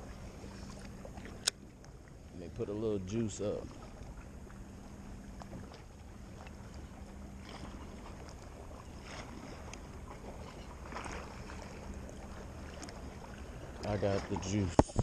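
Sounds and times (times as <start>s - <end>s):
small waves lapping: 0.0s - 15.0s.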